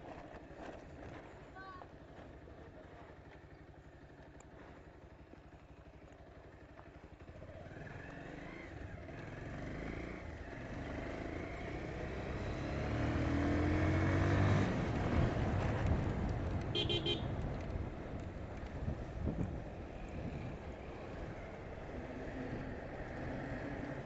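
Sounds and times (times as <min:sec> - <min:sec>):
motorcycle engine accelerating: 0:06.6 - 0:24.0.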